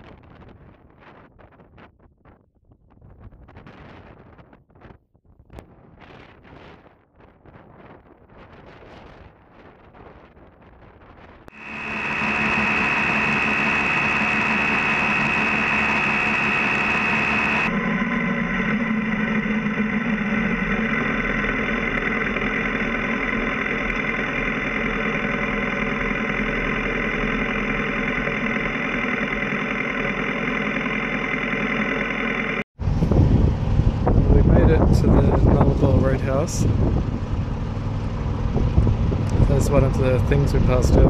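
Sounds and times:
high steady whine: 11.4s - 41.0s
motorcycle engine running: 11.5s - 40.8s.

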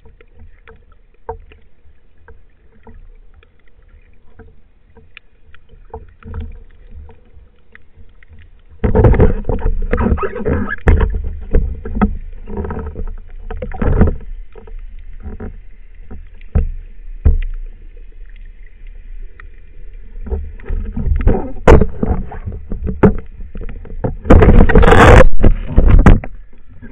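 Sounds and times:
underwater knocks and scrapes: 0.0s - 26.9s
water splashing: 0.0s - 26.9s.

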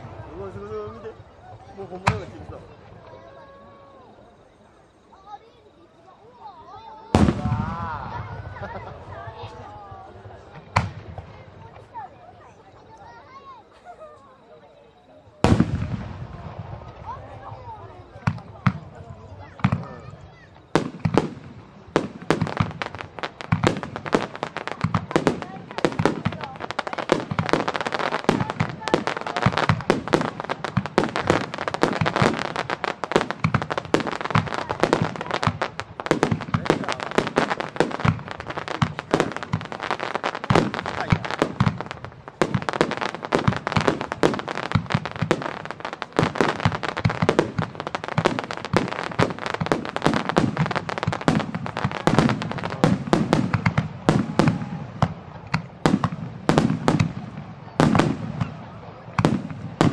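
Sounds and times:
firework shells bursting: 15.4s - 59.9s.

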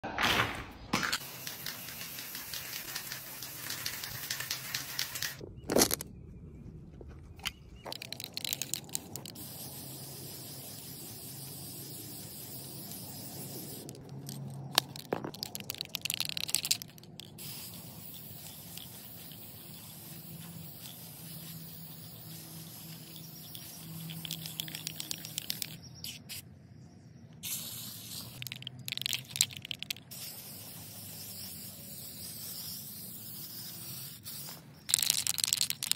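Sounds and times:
spray paint cans hissing: 1.1s - 5.4s, 7.4s - 26.4s, 27.4s - 35.9s.

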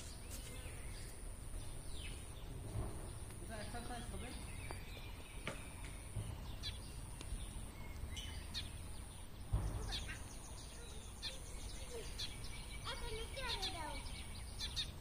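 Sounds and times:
low outdoor rumble: 0.0s - 15.0s
small birds chirping: 0.0s - 15.0s
low thump: 2.6s - 3.2s, 5.4s - 7.6s, 9.4s - 10.3s.

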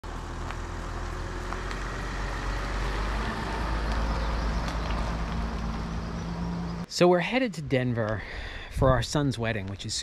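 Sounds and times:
van driving past: 0.1s - 6.9s.

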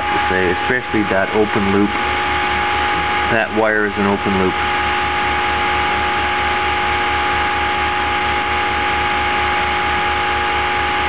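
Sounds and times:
electric motor hum and whine: 0.0s - 11.0s
low pulsing throb: 0.0s - 11.0s.

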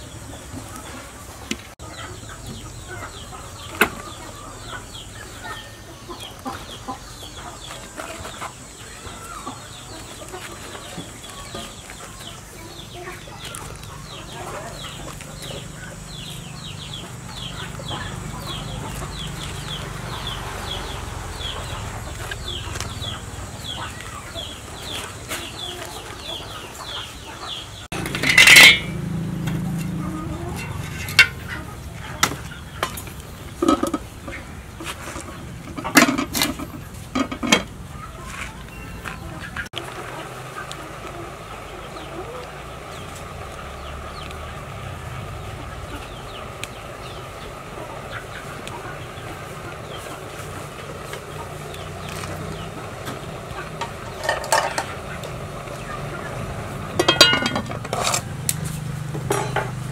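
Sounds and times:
chicks cheeping: 0.0s - 59.9s
spatula scraping wok: 27.9s - 31.7s, 32.8s - 37.8s, 53.6s - 55.4s, 56.9s - 59.8s.

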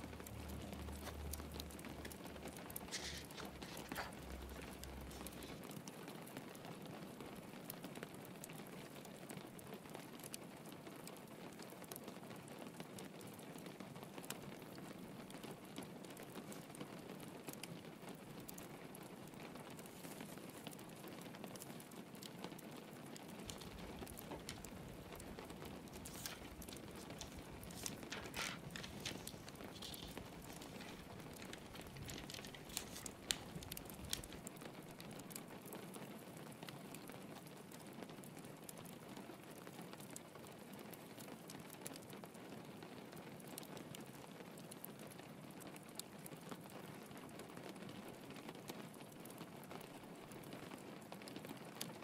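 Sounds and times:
log fire crackling: 0.0s - 42.3s, 45.8s - 52.0s
rain pattering: 0.0s - 52.0s.

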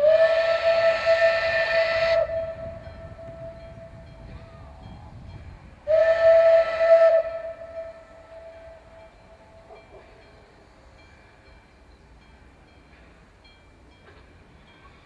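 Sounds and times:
steam locomotive whistle: 0.0s - 5.1s, 5.8s - 10.4s.

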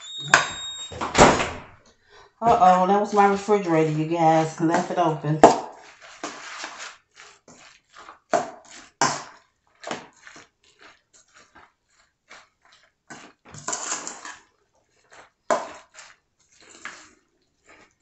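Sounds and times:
spoon stirring in metal bowl: 2.4s - 11.7s, 13.1s - 14.4s.

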